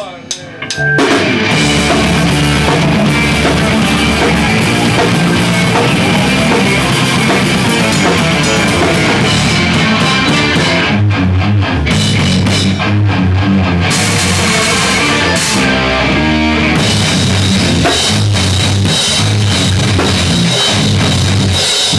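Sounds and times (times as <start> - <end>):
drum kit with cymbals: 0.0 - 11.0, 11.9 - 12.8, 16.6 - 21.9
bass: 0.0 - 21.9
electric guitars: 0.4 - 21.9
rock band playing loudly: 0.4 - 21.9.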